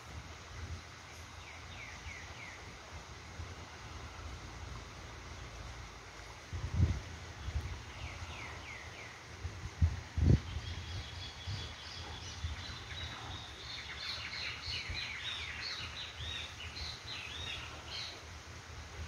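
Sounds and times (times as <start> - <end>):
birds chirping: 10.4 - 18.2.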